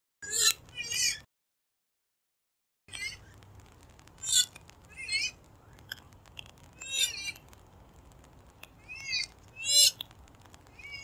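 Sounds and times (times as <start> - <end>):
swamphen calling: 8.8 - 10.0.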